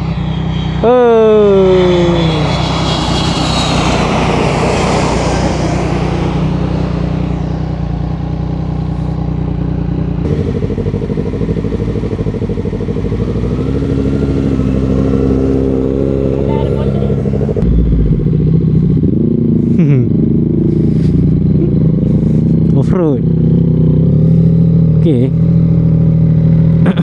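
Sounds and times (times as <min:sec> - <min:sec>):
rush of noise: 0:00.0 - 0:08.2, 0:17.1 - 0:19.6
motorcycle engine running: 0:05.6 - 0:27.0.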